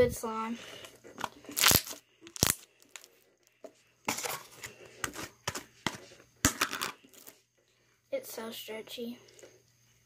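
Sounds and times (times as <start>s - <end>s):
slime clicks and crackles: 1.6s - 3.1s
slime popping: 1.6s - 3.1s.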